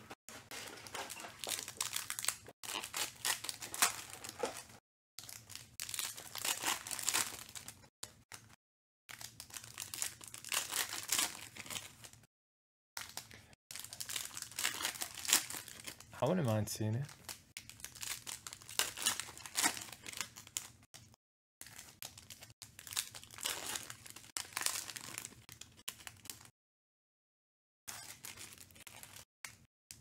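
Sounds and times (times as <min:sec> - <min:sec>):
foil wrappers crinkling and tearing: 0:00.4 - 0:07.8, 0:09.1 - 0:12.2, 0:13.0 - 0:16.1, 0:17.1 - 0:20.8, 0:21.6 - 0:26.5, 0:28.1 - 0:29.6.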